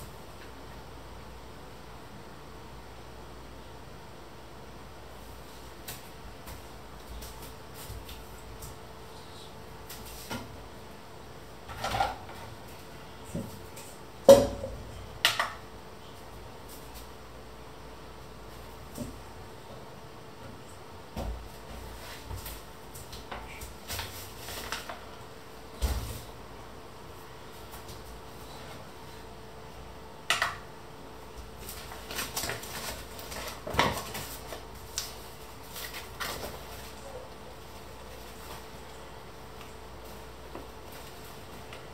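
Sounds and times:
faint steady hum: 0.0s - 41.9s
paper bag crinkling: 31.6s - 37.0s.

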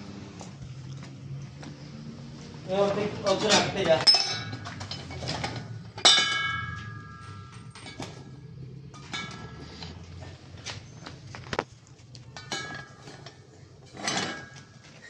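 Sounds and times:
steel parts clanging: 3.2s - 10.5s, 12.2s - 15.0s.

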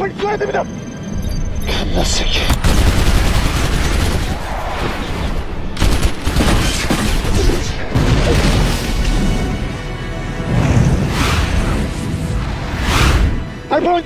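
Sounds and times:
dramatic music: 0.0s - 14.0s
gunfire bursts: 2.6s - 4.4s, 5.8s - 7.4s.

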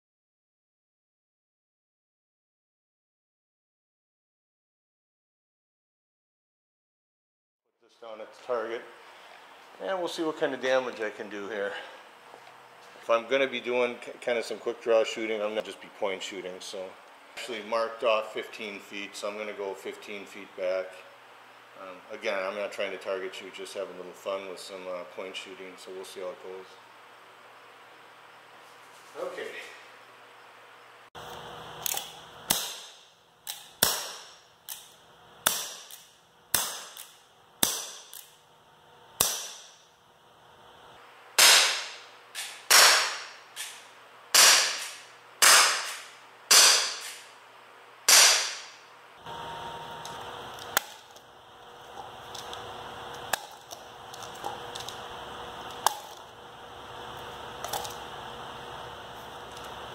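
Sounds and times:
air pistol shots popping: 31.9s - 34.8s, 35.4s - 38.3s, 39.2s - 39.8s, 41.4s - 47.3s, 48.1s - 48.8s
gun handling clicks: 47.0s - 47.3s.

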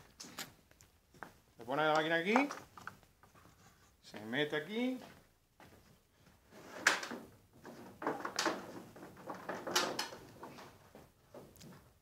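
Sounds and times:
knocks and scrapes of handling: 2.3s - 4.0s, 6.4s - 11.9s.

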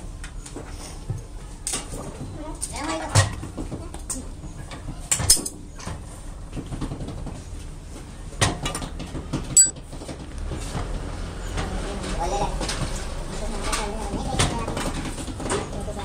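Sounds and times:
metal tools knocking: 9.6s - 9.8s
ringing metallic clank: 9.6s - 9.8s.

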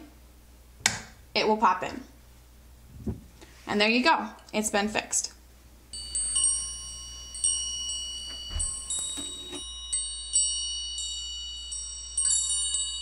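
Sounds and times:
metal wind chimes ringing: 5.9s - 13.0s.

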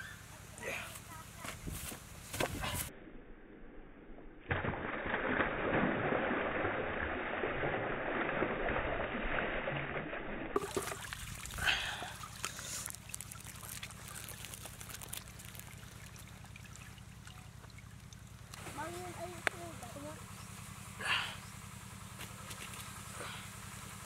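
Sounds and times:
water pouring and splashing: 4.5s - 19.0s, 22.3s - 23.1s.

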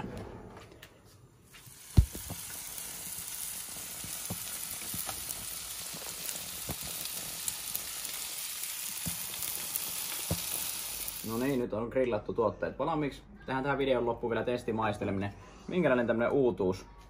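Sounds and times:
meat sizzling on grill tray: 1.6s - 11.6s
small pops: 3.9s - 7.2s.

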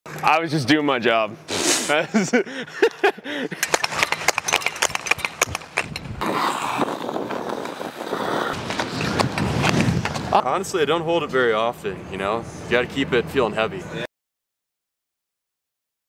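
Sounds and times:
skate blades scraping ice: 1.5s - 1.9s, 3.6s - 10.4s
person laughing: 1.7s - 3.7s.

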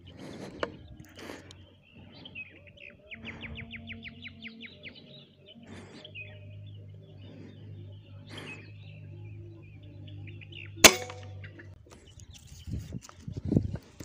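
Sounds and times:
small birds chirping: 0.0s - 14.0s
air rifle shot: 10.8s - 11.3s.

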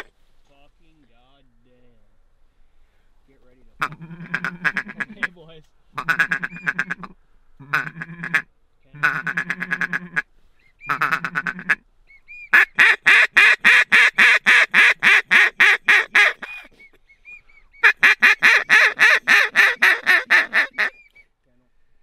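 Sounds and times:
duck call quacking: 3.8s - 5.4s, 6.0s - 10.2s, 10.8s - 11.8s, 12.5s - 16.7s, 17.8s - 21.0s.

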